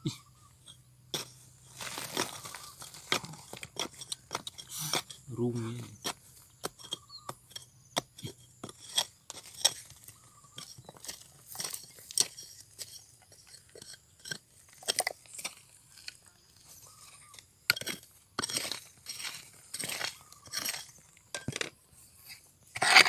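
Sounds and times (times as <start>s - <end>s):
metal tool scraping shale: 0.6s - 23.0s
rock flakes clinking: 1.1s - 5.2s.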